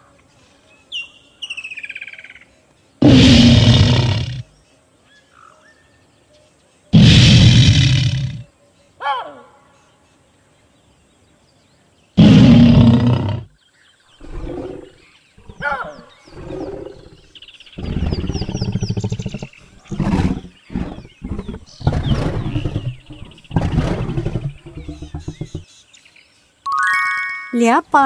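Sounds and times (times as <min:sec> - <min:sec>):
faint birds chirping: 0:00.0 - 0:26.7
lion grunting: 0:03.0 - 0:04.5, 0:07.0 - 0:08.5, 0:12.2 - 0:13.5, 0:14.2 - 0:25.7
lion roaring: 0:03.0 - 0:04.5, 0:07.0 - 0:08.5, 0:12.2 - 0:13.5, 0:14.2 - 0:25.6.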